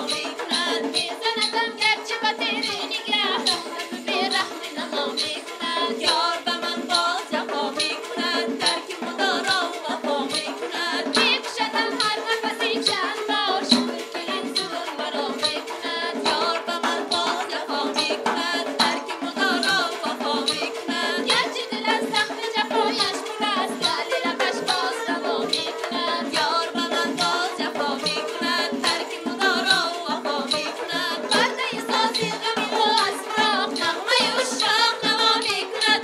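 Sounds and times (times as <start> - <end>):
driving drum rhythm: 0.0 - 36.0.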